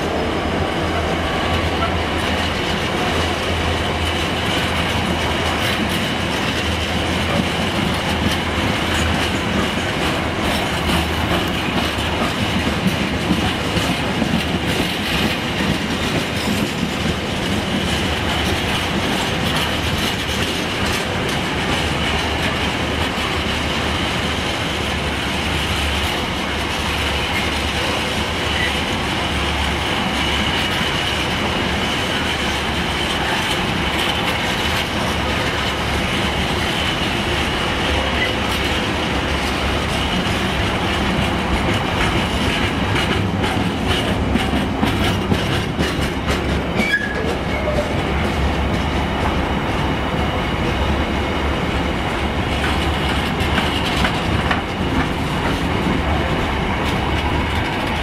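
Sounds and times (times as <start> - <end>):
train wheels rumbling on rail: 0.0 - 58.0
high wheel squeal: 46.8 - 48.0.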